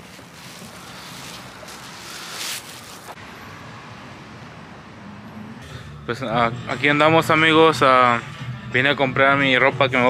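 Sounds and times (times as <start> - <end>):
outdoor background noise: 0.0 - 6.2.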